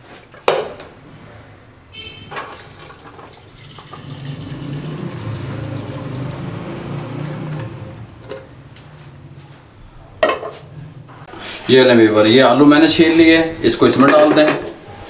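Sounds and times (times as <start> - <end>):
water pouring into a strainer: 2.5 - 8.0.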